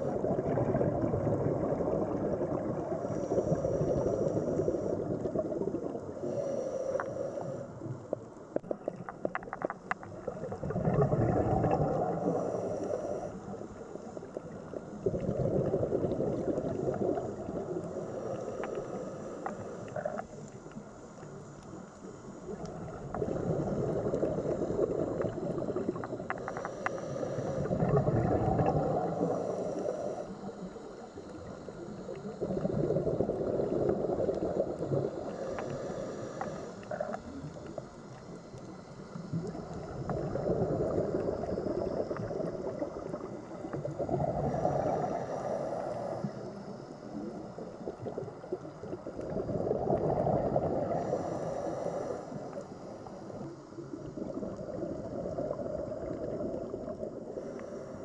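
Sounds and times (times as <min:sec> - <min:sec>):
underwater regulator bubbles gurgling: 0:00.0 - 0:58.0
faint clicks: 0:06.9 - 0:10.4, 0:17.1 - 0:28.0.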